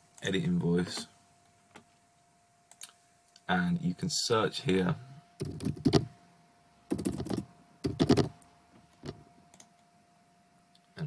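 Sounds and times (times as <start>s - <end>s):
keyboard typing: 5.4s - 6.1s, 6.9s - 8.4s.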